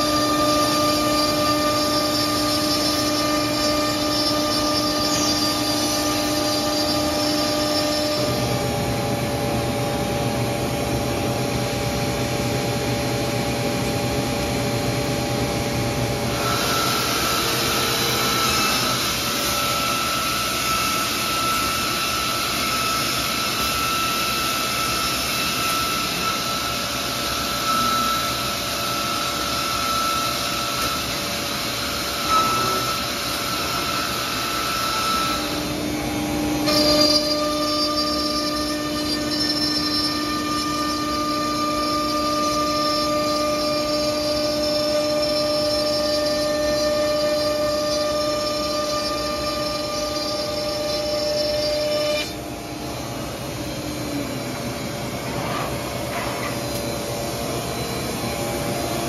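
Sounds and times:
machine running with whining motors: 0.0 - 59.0.

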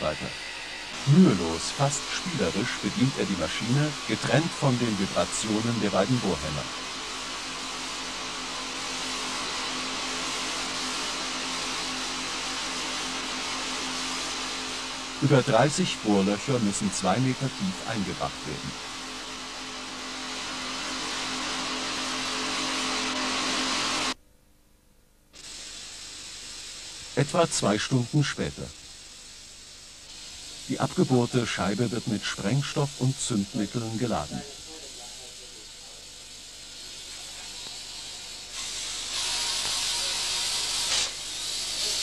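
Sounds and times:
faint steady hiss: 0.0 - 20.0, 24.0 - 42.0
pneumatic rock drills: 37.0 - 42.0.

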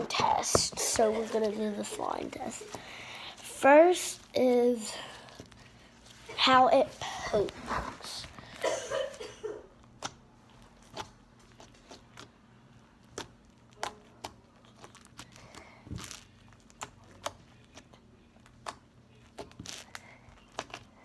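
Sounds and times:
slime squeezed and popping: 13.0 - 20.9.

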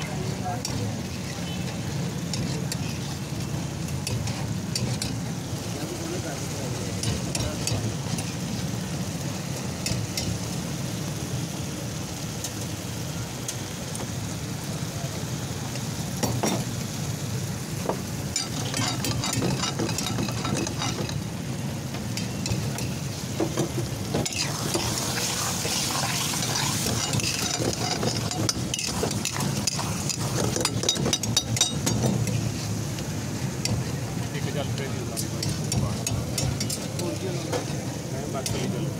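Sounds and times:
metal spatula scraping wok: 0.0 - 5.3, 18.4 - 21.2, 23.8 - 32.8
food sizzling: 0.0 - 38.9.

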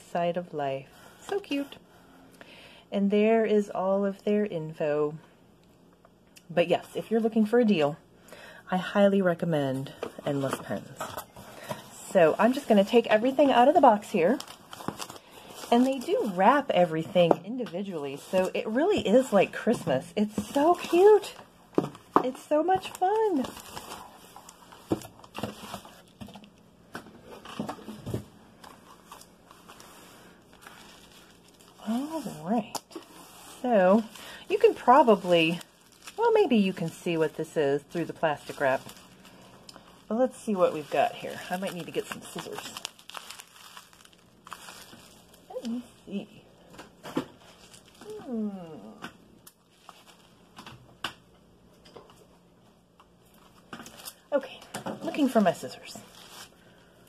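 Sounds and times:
paper and plastic packages rustling: 9.7 - 48.4, 49.5 - 51.0, 53.2 - 57.0.

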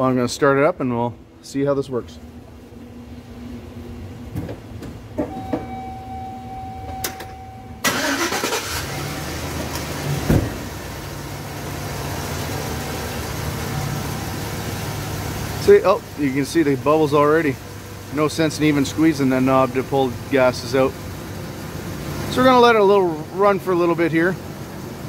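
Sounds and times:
van engine starting and idling: 2.3 - 25.0
steady tone: 5.3 - 7.9
thump: 10.2 - 10.6.

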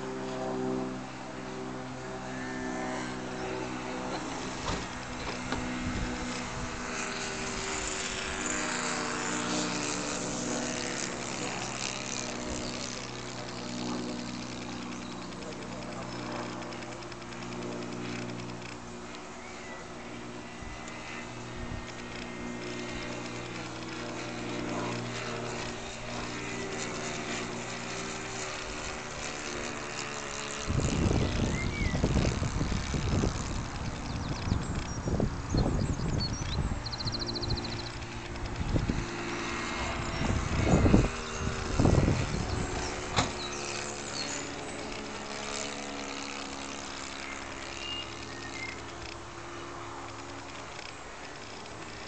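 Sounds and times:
model airplane engine droning: 0.0 - 52.0
wind buffeting microphone: 3.4 - 14.6, 28.4 - 44.1.

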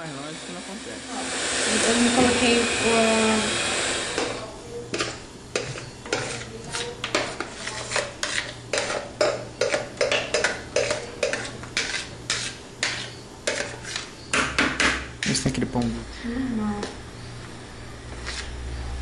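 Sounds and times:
utensil scraping ceramic bowl: 1.1 - 14.3.

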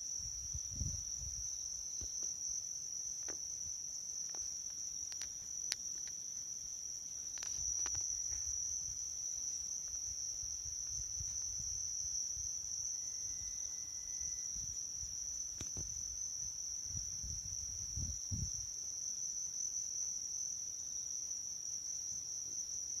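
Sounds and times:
crickets trilling: 0.0 - 23.0.

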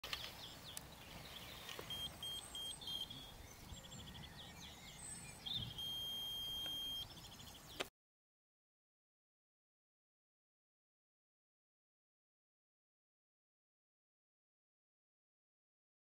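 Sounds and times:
small birds chirping: 0.0 - 7.9
electronic beeping: 1.9 - 3.4, 5.7 - 7.1.

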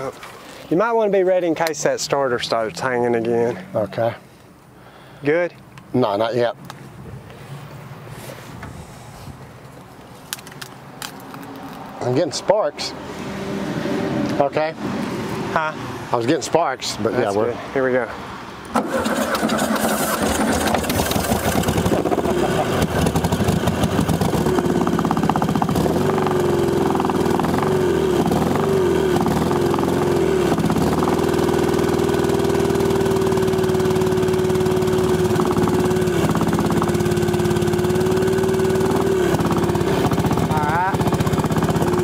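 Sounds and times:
car engine running: 1.6 - 4.2, 18.8 - 42.0.

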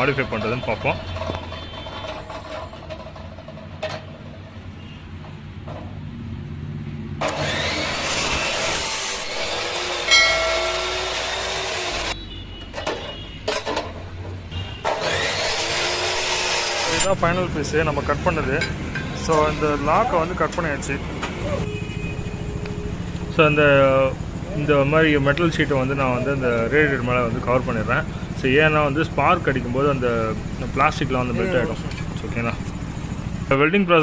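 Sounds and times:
saw grinding through metal: 7.2 - 12.2, 14.8 - 17.5
saw wheel spinning hum: 7.2 - 12.2, 14.8 - 18.2.

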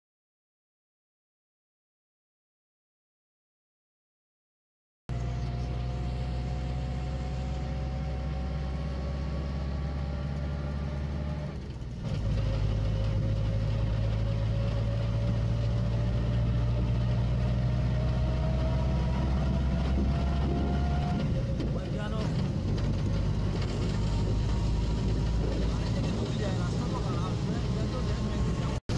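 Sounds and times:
rising whine: 5.1 - 11.2
vehicle engine hum: 5.1 - 28.9.

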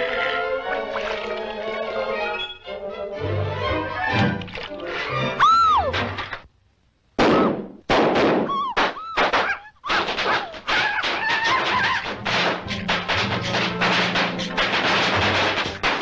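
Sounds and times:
whistle-like cry: 5.4 - 5.9, 8.5 - 9.8
cartoon popcorn popping: 7.2 - 16.0.

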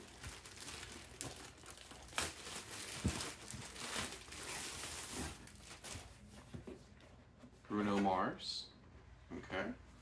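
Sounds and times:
packaging rustling and crinkling: 0.0 - 6.6.

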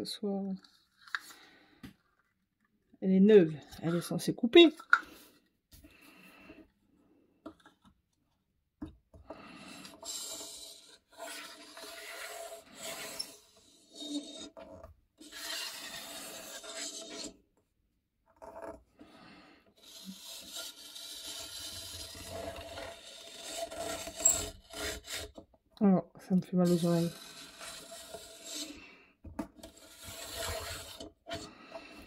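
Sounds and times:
blade scraping on paper: 9.5 - 17.4, 19.8 - 25.4, 26.6 - 28.8, 29.6 - 31.8.

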